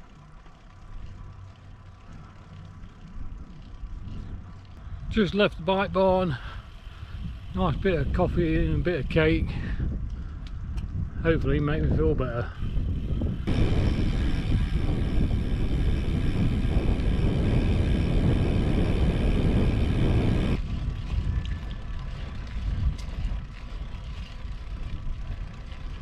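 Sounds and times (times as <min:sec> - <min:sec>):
road noise: 0:00.0 - 0:26.0
wind rumbling on microphone: 0:00.0 - 0:26.0
steady high whine: 0:12.8 - 0:20.7.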